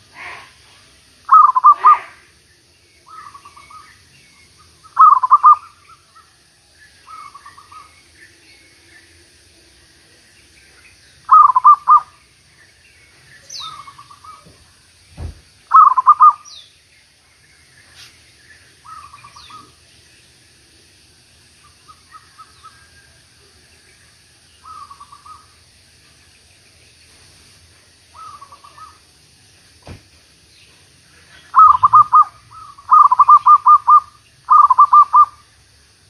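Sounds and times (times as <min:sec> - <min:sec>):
doves cooing: 0:01.3 - 0:02.3, 0:04.9 - 0:06.3, 0:11.3 - 0:12.2, 0:15.7 - 0:16.5, 0:28.1 - 0:29.0, 0:31.2 - 0:35.4
dull thump: 0:14.4 - 0:15.5, 0:29.8 - 0:30.2.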